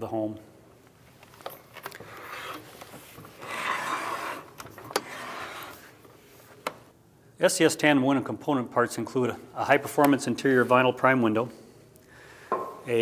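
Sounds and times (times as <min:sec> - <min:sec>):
wooden object scraping on tabletop: 0:03.4 - 0:05.9.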